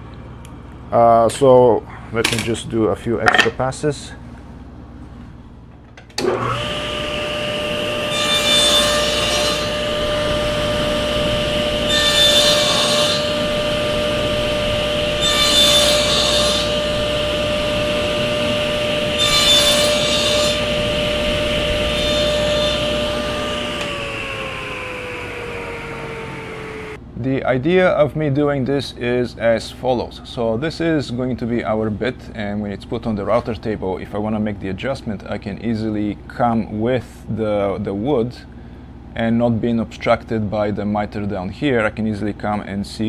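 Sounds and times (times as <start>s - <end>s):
saw blade winding down: 6.2s - 27.0s
saw cutting wood: 6.2s - 27.0s
table saw whining: 6.2s - 27.0s.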